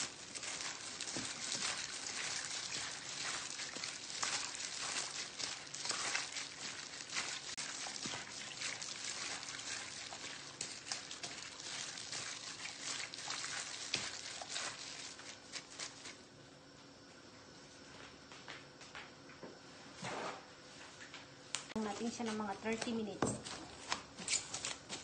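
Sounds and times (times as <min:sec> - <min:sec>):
wet squishing of raw chicken: 0:00.0 - 0:16.2.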